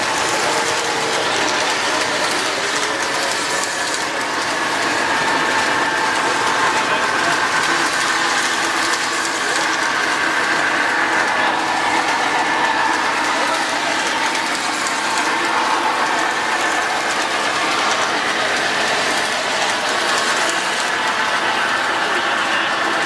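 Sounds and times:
model train motors whirring: 0.0 - 23.0
wheels clattering over track: 0.0 - 23.0.

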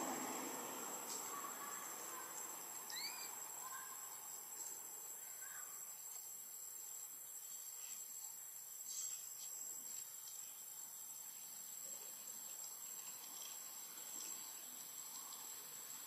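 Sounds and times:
high-pitched insect buzz: 1.1 - 4.7
short rising chirps: 2.9 - 3.3.

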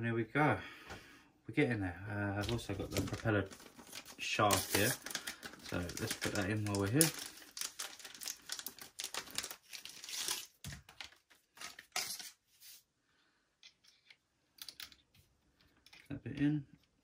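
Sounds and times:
plastic packaging tearing: 2.4 - 12.4.

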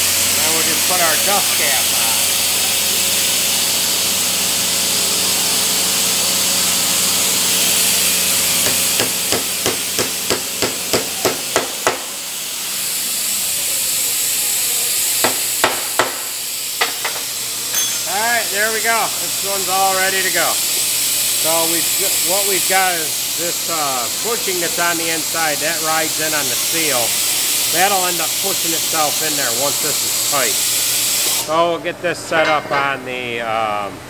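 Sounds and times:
steady hiss and hum: 14.7 - 34.0
hammer tapping on steel: 15.2 - 18.2.

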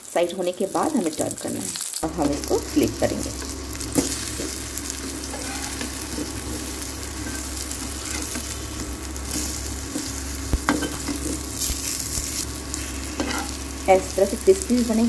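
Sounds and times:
eggplant slices sizzling in oil: 0.0 - 15.0
metal spatula scraping a pan: 5.2 - 8.6, 12.8 - 13.6.

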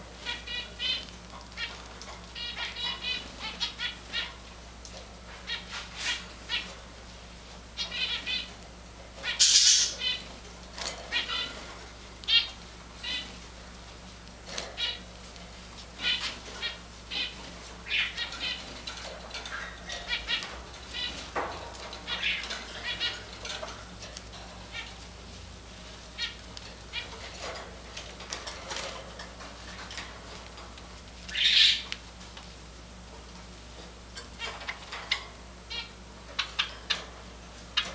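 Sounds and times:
sparrows chirping: 0.0 - 7.0, 7.6 - 32.0, 34.2 - 37.9.

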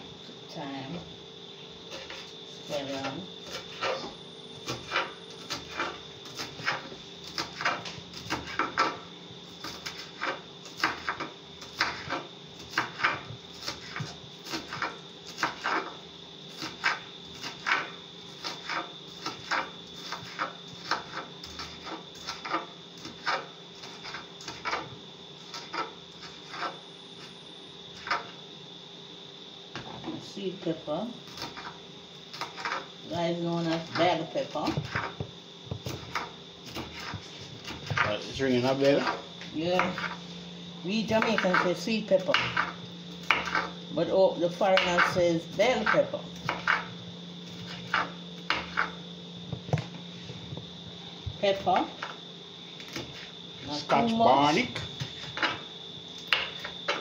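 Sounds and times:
faint steady hum: 0.0 - 57.0
knife chopping on wooden board: 4.7 - 9.0, 9.6 - 15.9, 16.6 - 24.9, 34.6 - 38.1, 42.2 - 43.7, 45.8 - 46.9, 47.5 - 49.0.

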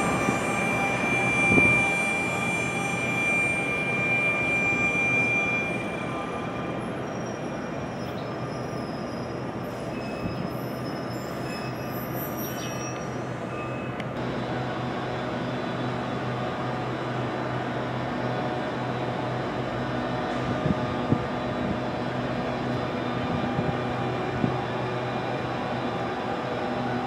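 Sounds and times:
train brake squeal: 0.0 - 14.0
train noise: 0.0 - 27.0.

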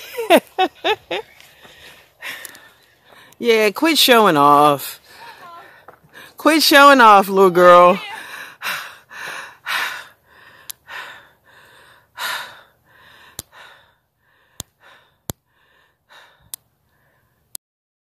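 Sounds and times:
person gasping breaths: 8.1 - 17.4.

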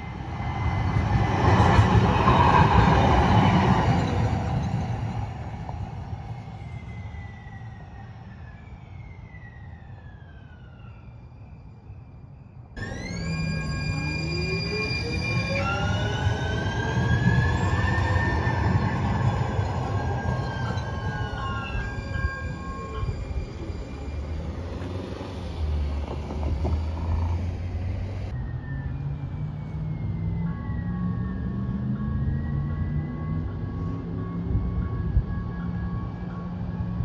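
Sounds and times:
wheels rumbling on rail: 0.0 - 7.2, 12.8 - 37.0
streetcar motors whining: 12.8 - 37.0.

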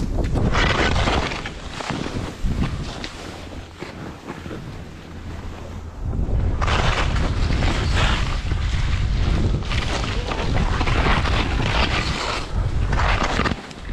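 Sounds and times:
wind buffeting microphone: 0.0 - 13.9
skis hissing through powder snow: 6.7 - 10.0.

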